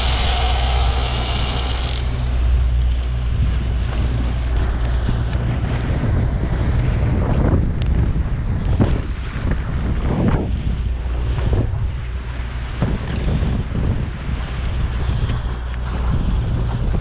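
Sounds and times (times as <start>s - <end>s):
water washing: 0.0s - 7.1s
steady low hum: 0.0s - 17.0s
wind buffeting microphone: 0.0s - 17.0s.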